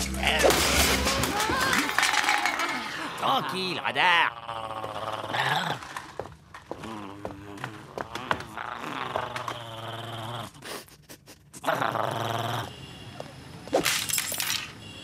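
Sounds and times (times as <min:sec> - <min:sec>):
game console crashing: 0:00.3 - 0:02.8, 0:13.8 - 0:14.7
cartoon dog growling: 0:03.8 - 0:06.0, 0:06.8 - 0:10.8, 0:11.4 - 0:12.7.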